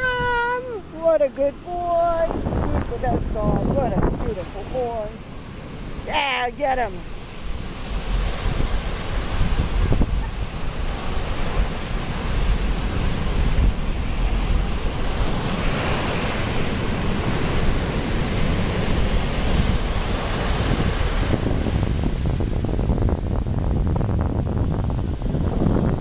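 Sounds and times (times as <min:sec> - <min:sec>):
ocean surf on beach: 0:00.0 - 0:26.0
wind rumbling on microphone: 0:00.0 - 0:26.0.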